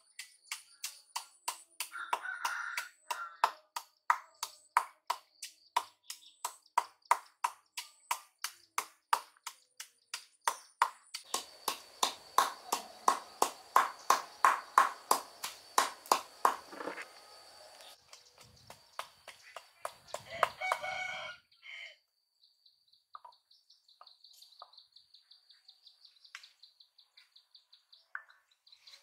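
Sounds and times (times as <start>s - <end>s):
sharp knocks on hard surface: 4.8s - 17.0s.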